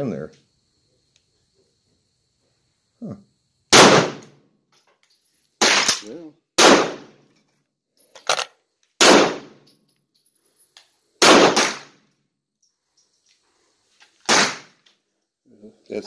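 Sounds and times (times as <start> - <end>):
gunshots with echo: 3.7 - 4.2, 6.6 - 7.2, 9.0 - 9.6, 11.2 - 11.9, 14.3 - 14.7
faint gunshot cracks: 3.7 - 4.3, 5.6 - 7.1, 9.0 - 9.6, 11.2 - 11.9, 14.3 - 14.7.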